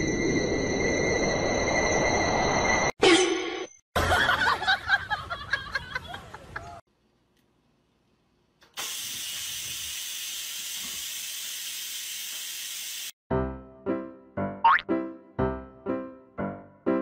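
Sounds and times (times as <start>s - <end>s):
rice cooker venting steam: 8.7s - 13.1s.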